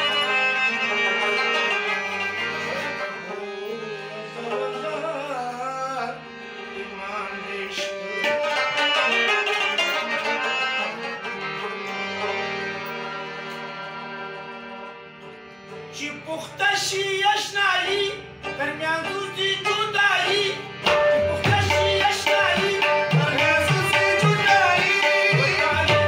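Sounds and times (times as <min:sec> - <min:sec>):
man singing: 0:00.0 - 0:12.4, 0:15.9 - 0:26.0
harmonium: 0:00.0 - 0:26.0
tabla drumming: 0:20.8 - 0:26.0.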